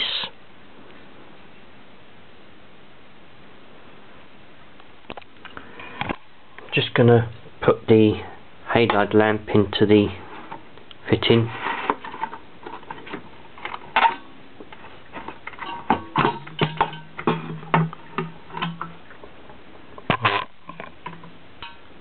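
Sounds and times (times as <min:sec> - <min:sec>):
metal clatter: 0:11.6 - 0:19.2
lamp handling clicks and knocks: 0:12.0 - 0:19.0.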